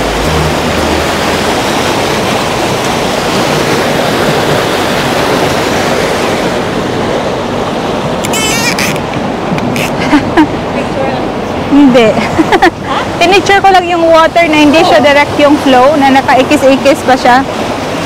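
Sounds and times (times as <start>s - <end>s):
water rushing down a channel: 0.0s - 11.7s.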